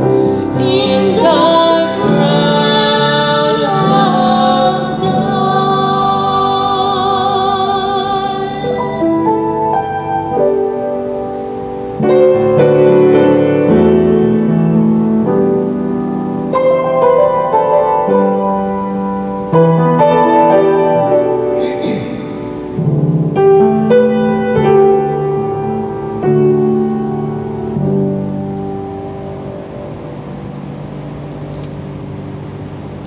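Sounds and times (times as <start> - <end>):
woman singing with vibrato: 0.0 - 9.7
slow piano chords: 0.0 - 33.0.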